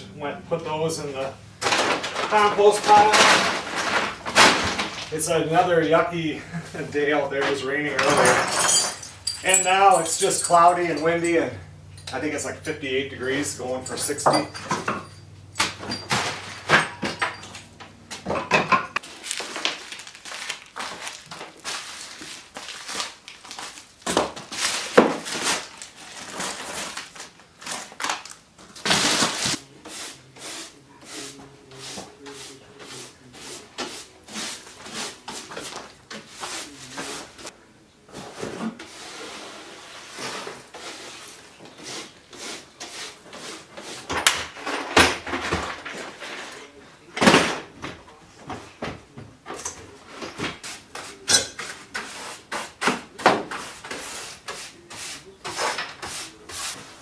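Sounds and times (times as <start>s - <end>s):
items clattering and knocking: 1.6s - 5.7s, 7.2s - 12.7s, 13.6s - 29.6s, 34.7s - 39.1s, 43.8s - 54.6s.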